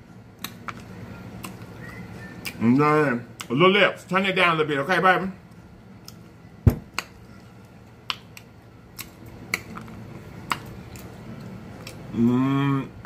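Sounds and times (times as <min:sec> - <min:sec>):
wet eating clicks and smacks: 0:00.4 - 0:02.6, 0:05.5 - 0:06.3, 0:06.9 - 0:12.1.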